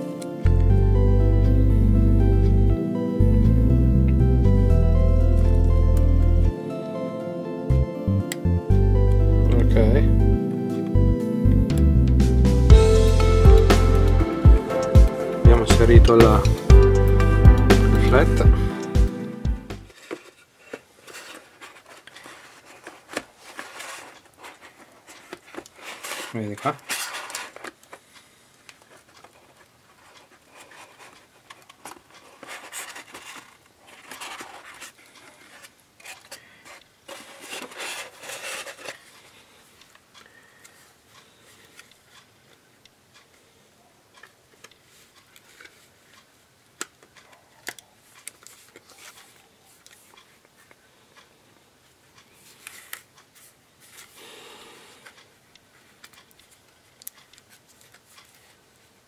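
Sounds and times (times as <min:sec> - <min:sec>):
rubbing and scraping plastic: 0:19.9 - 0:28.0, 0:28.7 - 0:39.5, 0:48.1 - 0:50.7.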